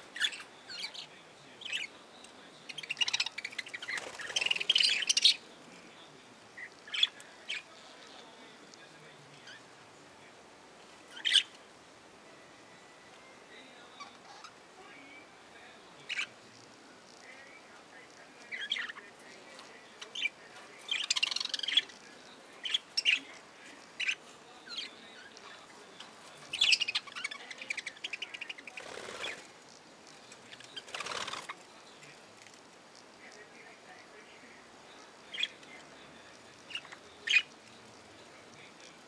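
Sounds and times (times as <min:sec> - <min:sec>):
budgerigars chirping and chattering: 0:00.1 - 0:05.5, 0:06.5 - 0:09.7, 0:11.1 - 0:11.6, 0:13.8 - 0:14.6, 0:16.0 - 0:16.4, 0:17.2 - 0:32.3, 0:33.2 - 0:39.0.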